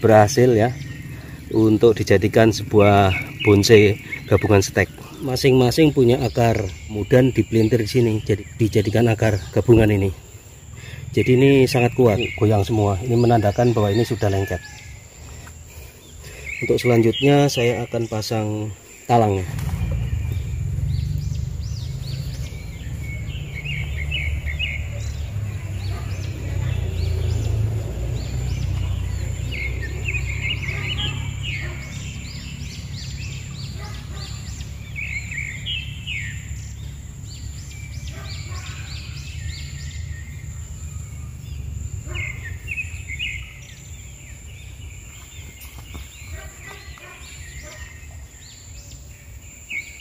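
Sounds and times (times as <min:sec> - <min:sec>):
birds chirping: 0:00.0 - 0:50.0
steady low rumble: 0:19.3 - 0:38.1.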